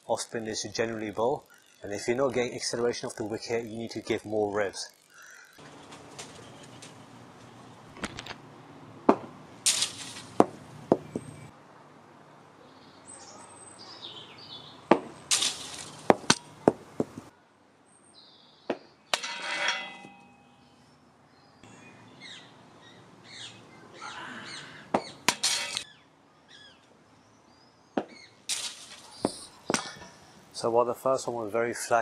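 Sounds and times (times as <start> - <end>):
birds chirping faintly: 0.1 - 8.9, 10.0 - 32.0
cricket ball knocking on mat: 14.9 - 15.1.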